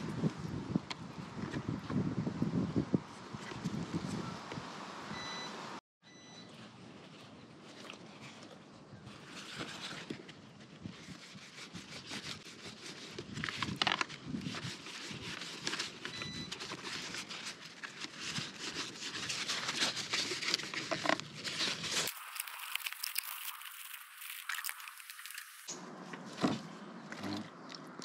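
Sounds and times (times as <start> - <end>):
paper towel rustling and crinkling: 9.1 - 26.6.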